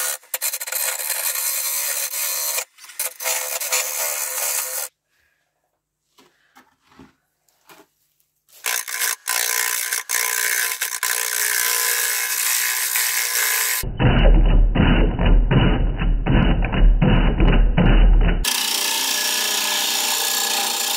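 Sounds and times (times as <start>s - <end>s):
wood lathe tool scraping: 8.6s - 13.8s, 18.4s - 20.9s.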